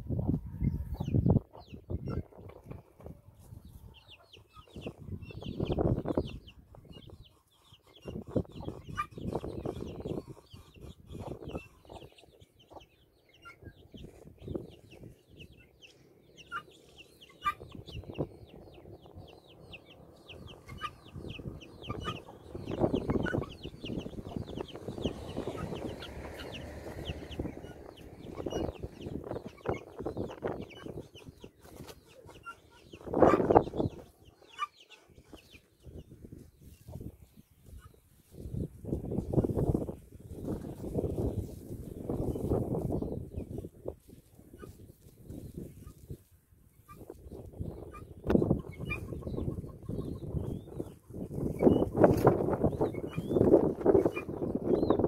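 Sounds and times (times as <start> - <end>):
guinea fowl calling: 3.8 - 13.7, 16.4 - 18.3, 19.7 - 35.6, 47.8 - 50.9, 52.7 - 54.9
harsh rasping bird calls: 15.5 - 35.4.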